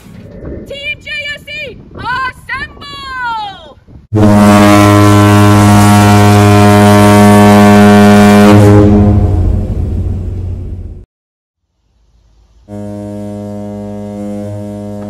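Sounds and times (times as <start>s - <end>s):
plastic stadium horn blowing: 4.1s - 9.4s, 12.7s - 15.0s.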